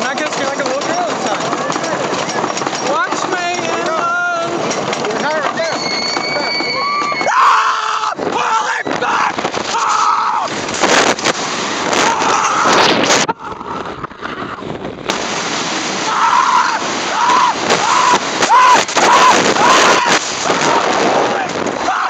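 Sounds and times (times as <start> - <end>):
roller coaster roaring on track: 0.0 - 22.0
riders screaming: 5.6 - 10.5, 11.9 - 13.9, 16.0 - 22.0
wind on microphone: 10.4 - 22.0.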